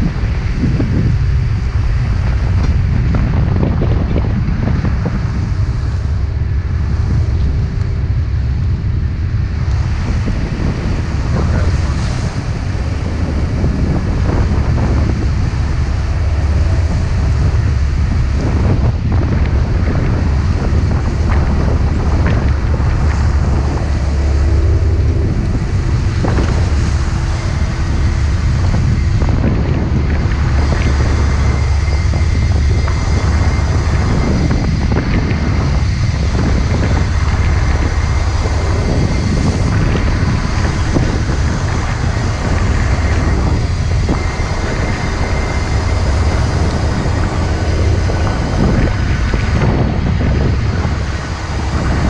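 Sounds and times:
low drone of boat engines: 0.0s - 52.0s
sea washing around stern: 0.0s - 52.0s
wind buffeting microphone: 0.0s - 52.0s.

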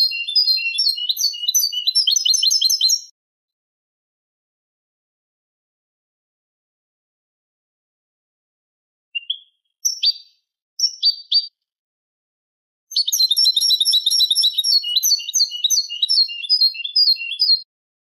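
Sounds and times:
finch singing: 0.0s - 3.1s, 9.2s - 11.6s, 12.9s - 17.6s.

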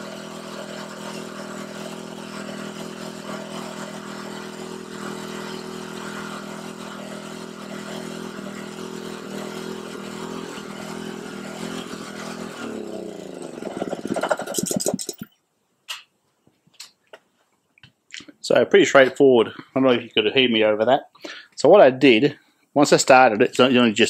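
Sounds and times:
small generator engine running: 0.0s - 15.3s.

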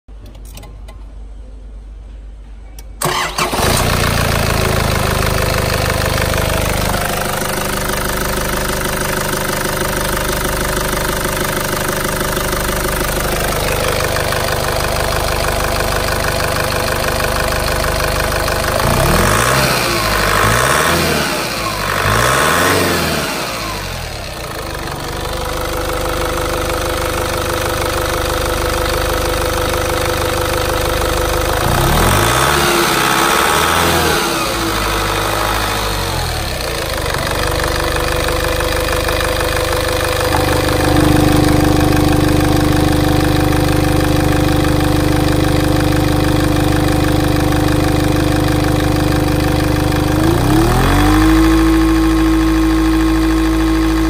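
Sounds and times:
diesel engine cranking and starting: 2.8s - 54.0s
diesel engine revving: 3.0s - 10.6s, 12.2s - 25.5s, 31.4s - 37.5s, 40.0s - 44.8s, 48.2s - 54.0s
diesel engine idling: 3.0s - 54.0s.

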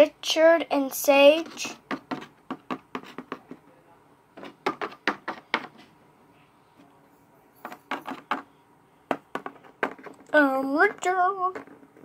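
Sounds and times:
plastic figures tapping on wood: 1.4s - 3.6s, 4.4s - 5.7s, 7.9s - 8.5s, 9.1s - 12.0s.

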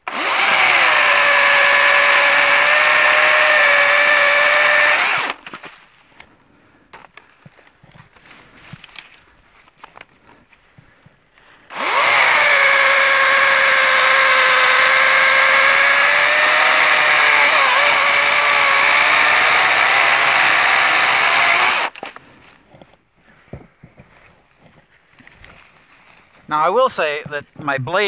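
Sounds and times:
electric chainsaw whine: 0.0s - 5.4s, 11.7s - 22.0s.

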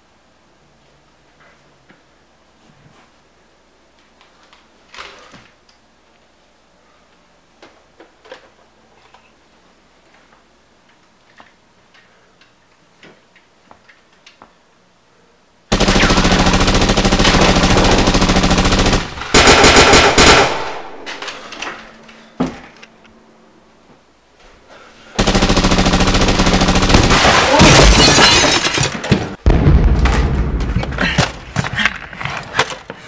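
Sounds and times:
machine-gun fire: 15.7s - 21.1s, 25.2s - 28.8s.

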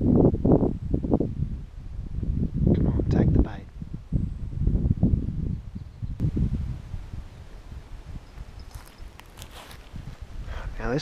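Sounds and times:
low rumble on microphone: 0.0s - 10.6s
footsteps on dry leaves and dirt: 8.4s - 10.2s.

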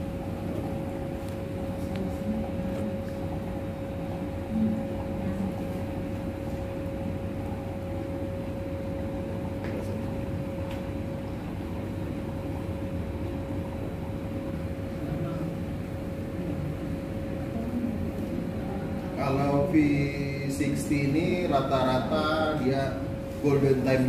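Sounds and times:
steady mechanical hum: 0.0s - 24.0s.

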